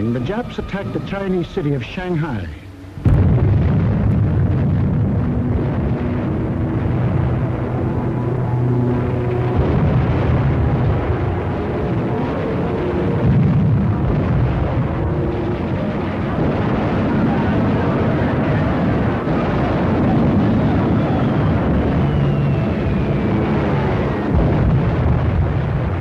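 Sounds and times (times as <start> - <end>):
explosions and gunfire: 3.0 - 26.0
faint falling whistle: 20.8 - 24.3.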